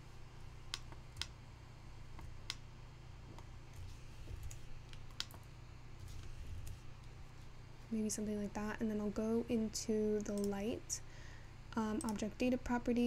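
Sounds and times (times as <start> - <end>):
low steady hum: 0.0 - 13.0
keyboard and mouse clicks: 0.7 - 1.4, 3.3 - 5.5, 10.2 - 10.6.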